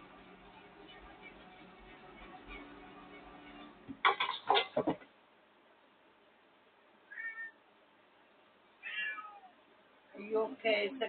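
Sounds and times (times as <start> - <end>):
clatter of knocks: 3.9 - 5.1
cat meowing: 7.1 - 7.6, 8.8 - 9.6.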